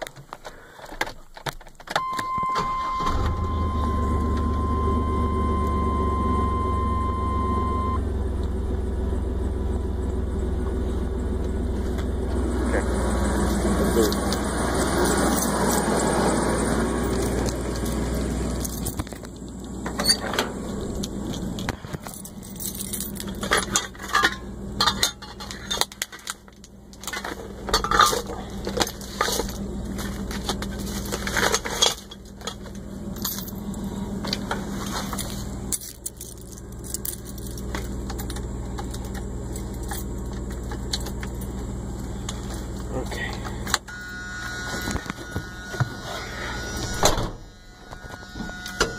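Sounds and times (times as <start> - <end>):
engine idling: 2.5 - 48.9
keys and metal parts jangling: 15.0 - 16.0, 17.0 - 20.3, 22.0 - 26.4, 30.8 - 33.8, 34.9 - 41.6.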